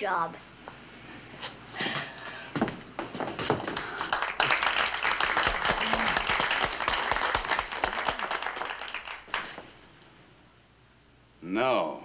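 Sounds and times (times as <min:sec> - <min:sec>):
audience applauding: 0:03.5 - 0:09.7.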